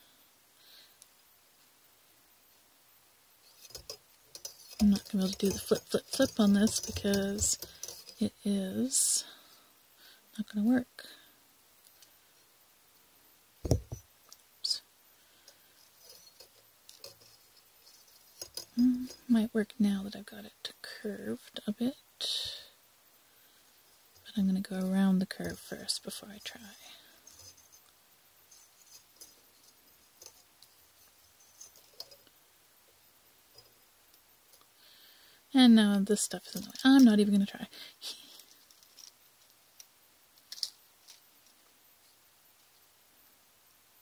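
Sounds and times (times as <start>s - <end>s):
soft wire clicks and ticks: 3.4s - 8.4s, 15.4s - 19.3s, 26.4s - 32.4s, 33.5s - 34.8s, 38.3s - 41.7s.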